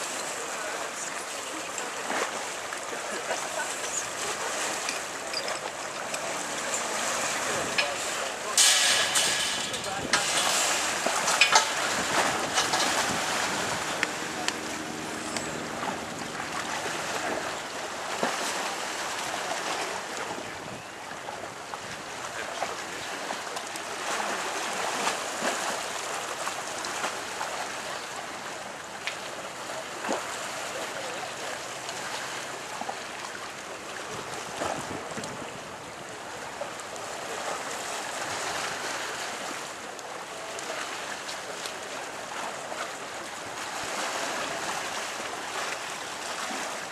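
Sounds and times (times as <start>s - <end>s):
choppy water rushing past boat: 0.0s - 46.9s
wind: 0.0s - 46.9s
faint engine hum: 12.2s - 19.2s.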